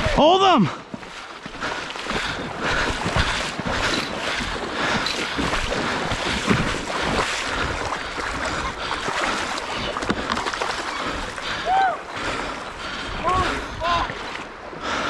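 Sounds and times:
river rushing: 0:00.0 - 0:14.9
fish thrashing and splashing: 0:01.4 - 0:11.6.

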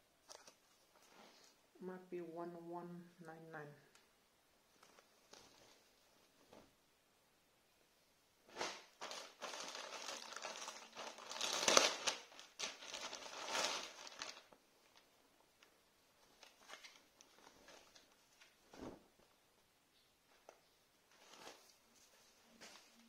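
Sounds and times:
plastic bag crinkling: 0:08.5 - 0:18.4.

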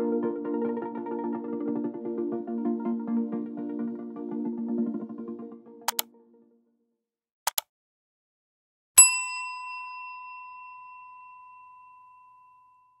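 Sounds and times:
mouse clicks: 0:05.9 - 0:06.1, 0:07.5 - 0:07.7
bright bell ding: 0:09.0 - 0:13.0.

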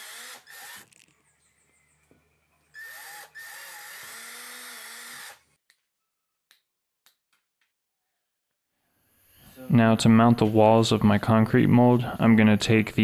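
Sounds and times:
cordless drill drilling plastic: 0:00.0 - 0:01.1, 0:02.8 - 0:05.5.

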